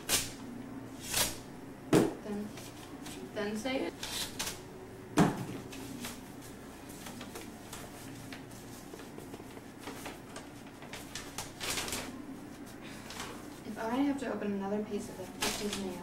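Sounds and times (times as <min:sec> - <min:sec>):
paper rustling and crinkling: 0:05.6 - 0:14.0, 0:15.1 - 0:16.0.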